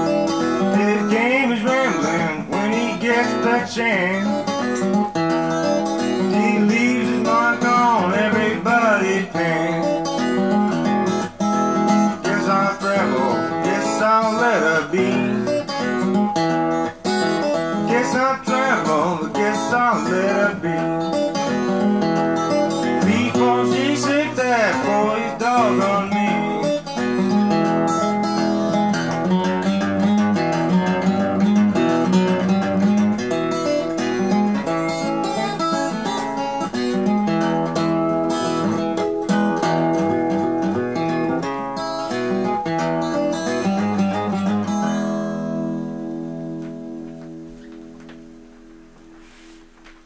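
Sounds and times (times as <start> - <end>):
fingerpicked acoustic blues guitar: 0.0 - 50.0.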